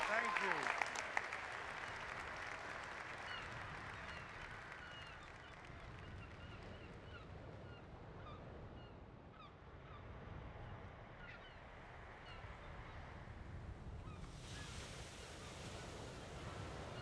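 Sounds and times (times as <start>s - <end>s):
surf rumble: 10.1s - 17.0s
hiss of breaking waves: 14.2s - 17.0s.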